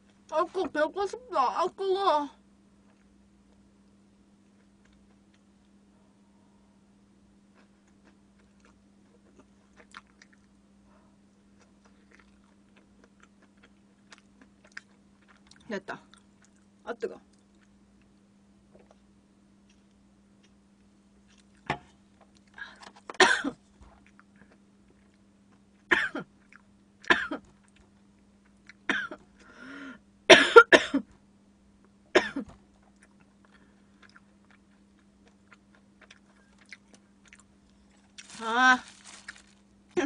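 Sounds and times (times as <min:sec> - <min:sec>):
woman clearing throat: 0:23.2 - 0:23.6, 0:25.9 - 0:26.3, 0:27.1 - 0:27.4, 0:28.9 - 0:29.2, 0:30.3 - 0:31.1, 0:32.2 - 0:32.6
woman coughing: 0:23.2 - 0:23.6, 0:25.9 - 0:26.3, 0:27.1 - 0:27.4, 0:28.9 - 0:29.2, 0:30.3 - 0:31.1, 0:32.2 - 0:32.5.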